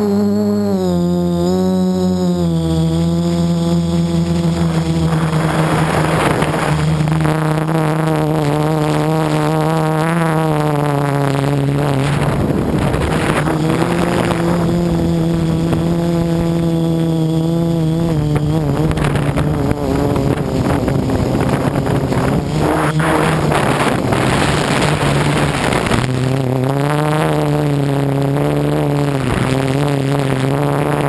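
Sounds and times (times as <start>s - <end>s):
drone motors buzzing: 0.0s - 31.0s
wind rushing: 4.3s - 8.0s, 11.8s - 16.7s, 18.4s - 26.3s.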